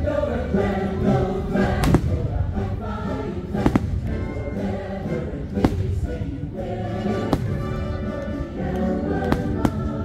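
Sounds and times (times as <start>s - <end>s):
choir singing with instruments: 0.0s - 10.0s
firework bangs: 1.7s - 2.4s, 3.6s - 4.3s, 5.6s - 6.3s, 7.0s - 8.1s, 9.2s - 10.0s.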